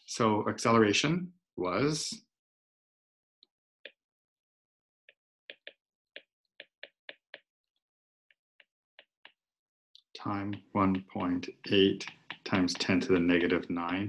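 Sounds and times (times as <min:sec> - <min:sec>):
stylus tapping on tablet: 0:05.5 - 0:07.5, 0:10.2 - 0:14.0.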